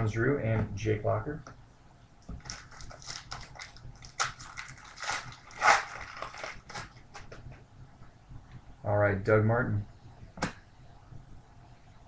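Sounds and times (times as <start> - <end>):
foil wrapper crinkling and tearing: 2.4 - 7.2.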